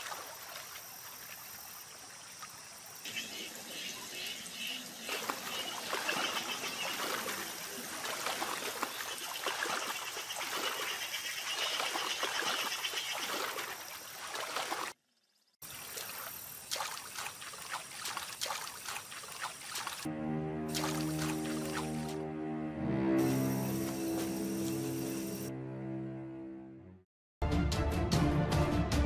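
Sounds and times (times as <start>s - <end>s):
water splashing and sloshing: 0.0s - 22.2s
music: 20.1s - 29.0s.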